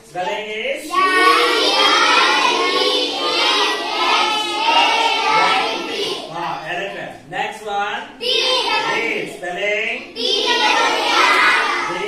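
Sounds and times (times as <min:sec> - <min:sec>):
children chanting in unison: 0:00.8 - 0:06.7, 0:08.2 - 0:09.4, 0:10.0 - 0:12.0.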